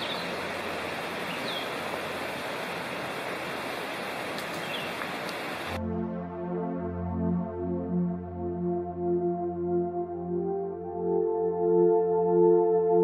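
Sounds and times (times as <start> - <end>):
mountain stream rushing: 0.0 - 5.8.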